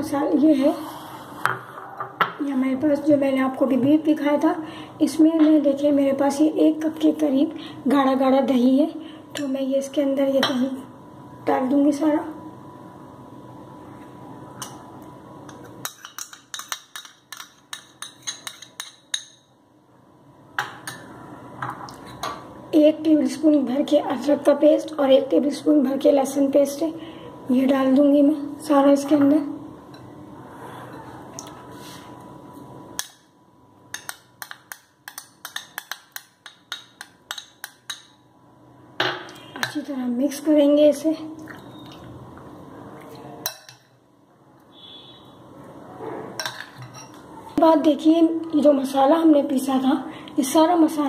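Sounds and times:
faint steady hum: 0:00.0 - 0:51.0
metal spoon tapping glass bowl: 0:33.9 - 0:38.2.

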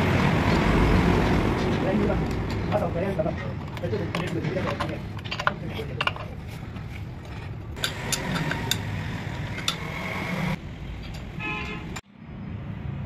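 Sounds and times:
traffic rumble: 0:00.0 - 0:13.0
spanner clinking on metal: 0:03.5 - 0:06.4
vehicle horn toot: 0:11.4 - 0:12.0.

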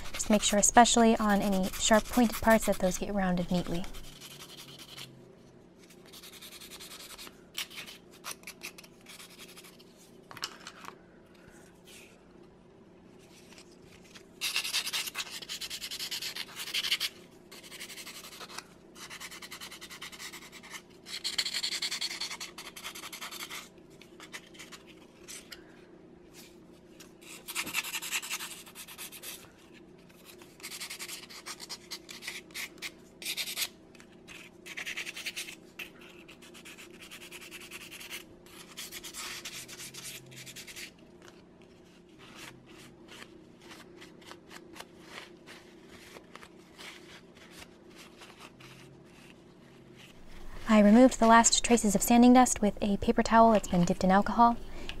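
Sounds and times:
sandpaper rubbing strokes: 0:00.0 - 0:05.0.

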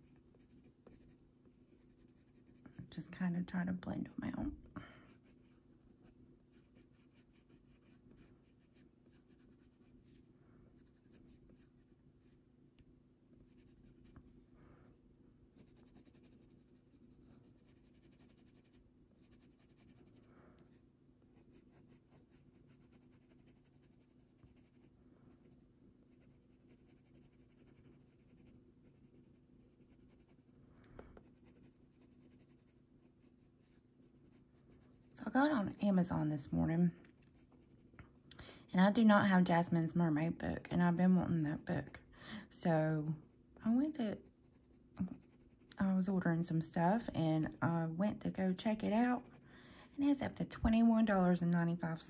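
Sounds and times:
coloured pencil scratching paper: 0:00.0 - 0:03.0, 0:05.1 - 0:10.2, 0:10.8 - 0:12.4, 0:13.4 - 0:14.4, 0:15.6 - 0:30.5, 0:31.2 - 0:38.0, 0:43.8 - 0:45.8.

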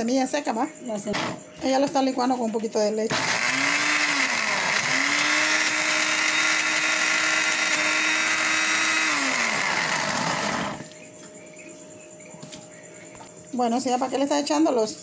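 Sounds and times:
blender motor whining: 0:03.1 - 0:10.9.

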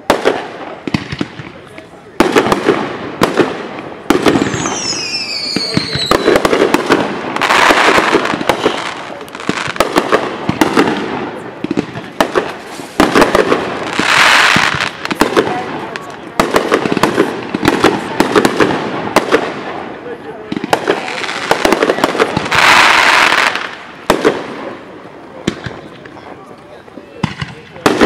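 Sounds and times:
fireworks bangs and crackles: 0:00.0 - 0:28.0
falling firework whistles: 0:04.4 - 0:06.5.

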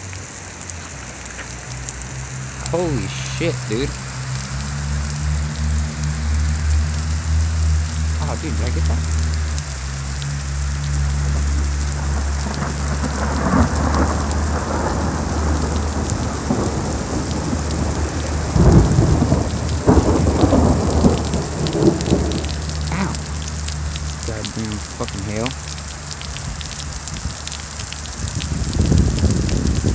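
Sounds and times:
heavy rain and hail: 0:00.0 - 0:29.9
thunder rolling: 0:12.0 - 0:23.4.

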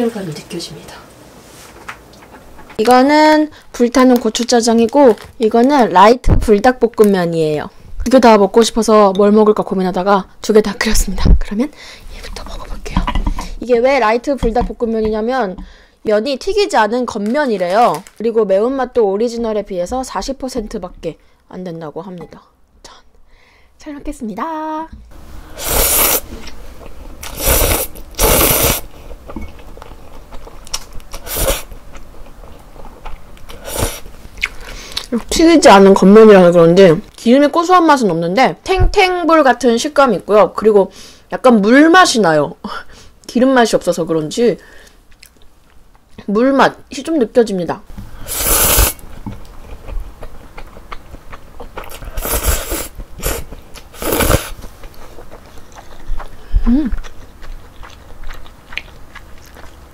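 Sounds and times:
slurping noodles: 0:25.5 - 0:26.5, 0:27.2 - 0:29.0, 0:31.2 - 0:31.7, 0:48.2 - 0:49.0, 0:51.8 - 0:54.6
wet chewing clicks: 0:29.2 - 0:35.3, 0:49.1 - 0:59.9.

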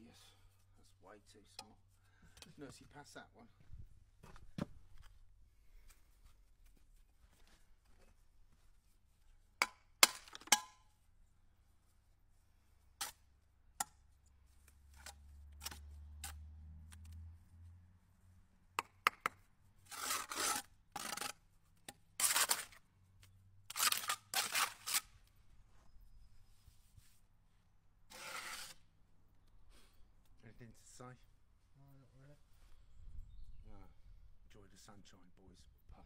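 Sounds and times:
trowel scraping mortar: 0:14.7 - 0:16.4, 0:19.8 - 0:21.5, 0:22.1 - 0:22.8, 0:23.7 - 0:25.3, 0:28.1 - 0:28.9
brick tapping into mortar: 0:18.8 - 0:19.4.

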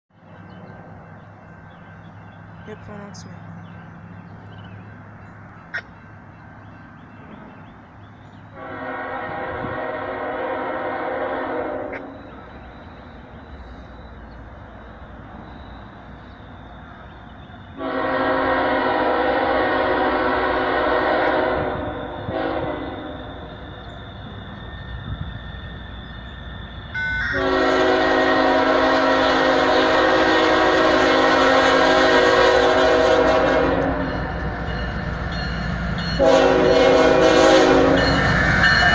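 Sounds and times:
low locomotive rumble: 0:00.2 - 0:38.9
locomotive air horn: 0:08.6 - 0:12.2, 0:17.8 - 0:23.4, 0:27.0 - 0:34.4, 0:36.2 - 0:38.2.

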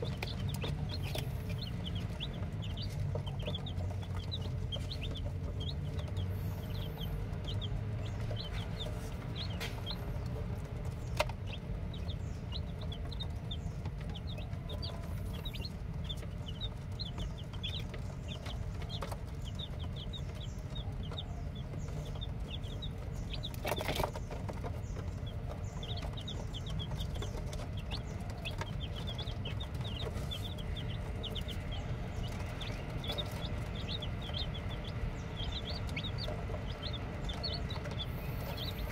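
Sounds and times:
chicks peeping: 0:00.0 - 0:38.9
low rumble: 0:00.0 - 0:38.9.

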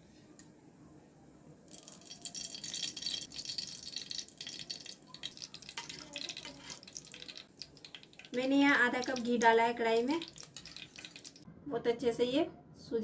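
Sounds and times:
ghee sizzling in pan: 0:01.7 - 0:11.4.

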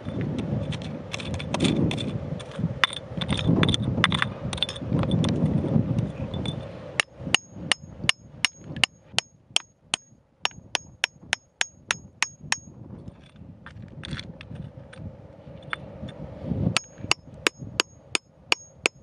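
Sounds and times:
chisel scraping in gravelly rock: 0:00.0 - 0:07.5
hammer blows on metal chisel: 0:07.0 - 0:12.7, 0:16.8 - 0:19.0.

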